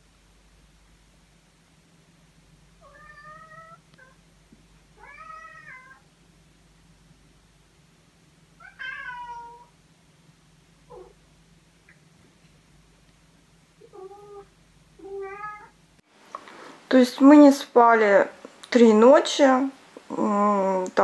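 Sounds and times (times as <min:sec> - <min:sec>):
cat meowing long moaning calls: 0:02.8 - 0:04.2, 0:08.6 - 0:09.7, 0:13.8 - 0:15.8.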